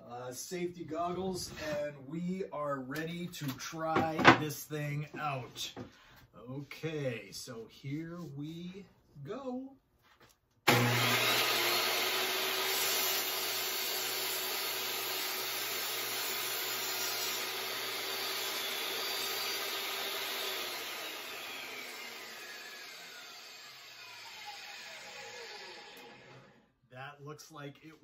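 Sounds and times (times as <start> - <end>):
table saw cutting plywood: 10.7 - 26.7.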